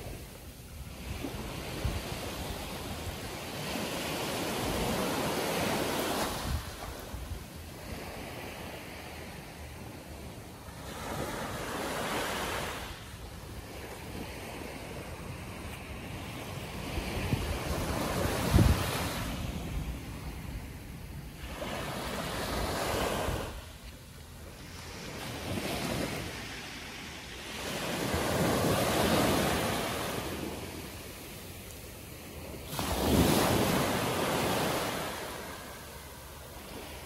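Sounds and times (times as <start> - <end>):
surf washing on sand: 0.0 - 37.0
wind buffeting microphone: 4.4 - 7.6, 15.9 - 23.9.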